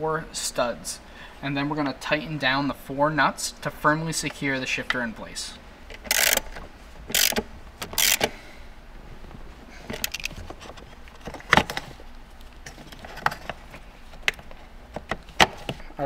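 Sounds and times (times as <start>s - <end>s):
ratchet wrench clicking: 6.1s - 6.5s, 7.1s - 8.3s.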